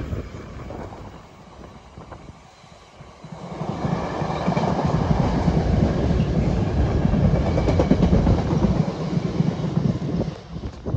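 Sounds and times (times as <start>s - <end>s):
train wheels clattering over rails: 3.1s - 10.9s.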